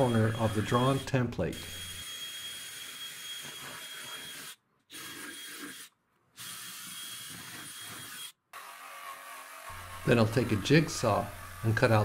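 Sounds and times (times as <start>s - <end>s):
cordless drill whining: 0.0s - 12.0s.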